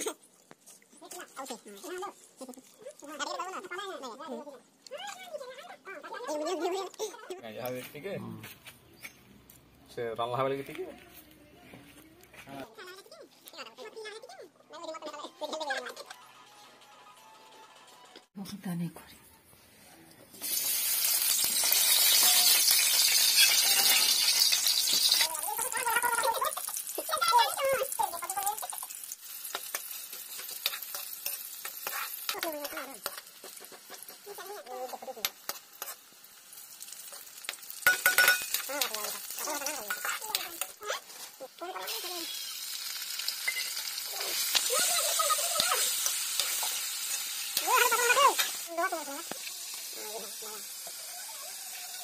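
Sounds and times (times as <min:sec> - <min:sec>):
onions sizzling in hot oil: 0:20.4 - 0:52.0
ladle stirring in pan: 0:28.0 - 0:52.0.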